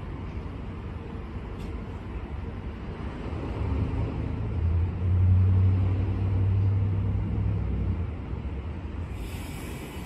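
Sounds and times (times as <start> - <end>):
electric train humming: 8.8 - 10.0.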